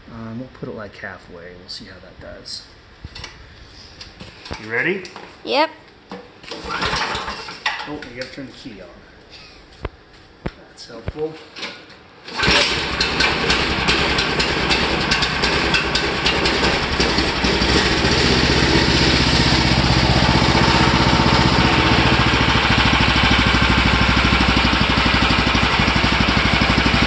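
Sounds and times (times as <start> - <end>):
recoil starter pull: 6.5 - 7.6, 12.3 - 27.0
small engine running with pops: 12.3 - 27.0.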